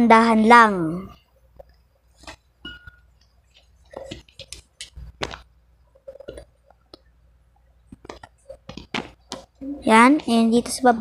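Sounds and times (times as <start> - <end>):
soft clicks and taps: 7.9 - 9.5.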